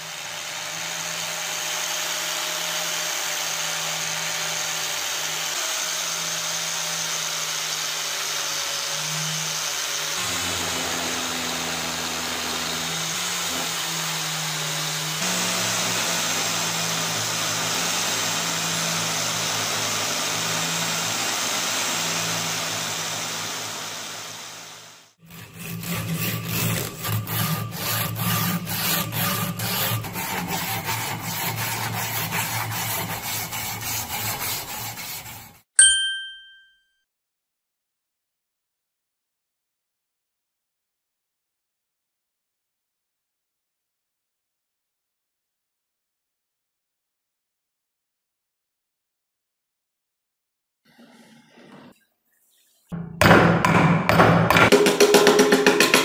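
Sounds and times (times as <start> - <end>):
bench grinder grinding steel: 0.0 - 35.7
abrasive strip rubbing steel: 25.2 - 35.6.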